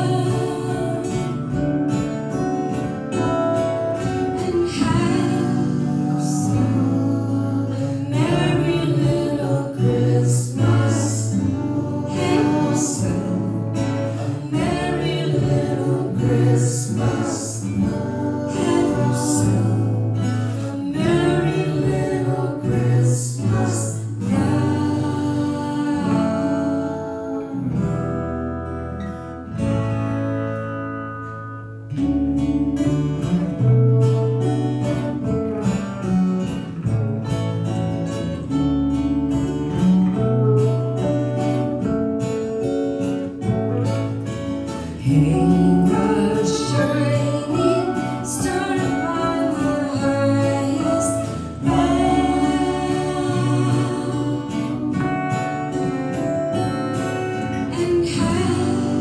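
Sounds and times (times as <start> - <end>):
singing: 0.0 - 1.6, 4.2 - 28.1, 44.8 - 56.2, 57.4 - 59.0
acoustic guitars playing: 0.0 - 59.0.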